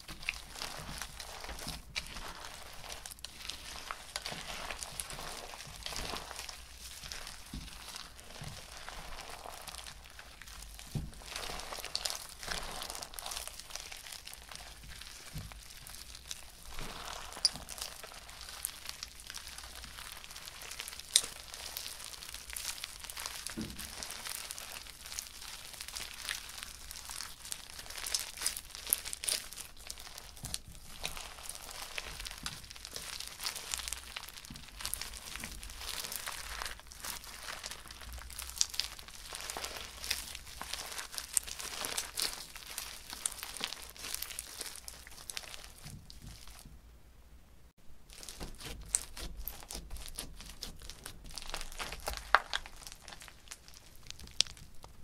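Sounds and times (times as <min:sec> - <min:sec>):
crunchy slime crackling and popping: 0:00.0 - 0:46.7, 0:48.0 - 0:55.0.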